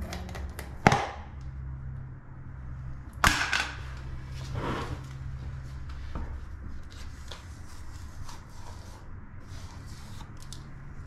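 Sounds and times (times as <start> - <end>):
steady low hum: 0.0 - 11.0
tiling float scraping swish: 4.3 - 5.8, 7.0 - 10.4.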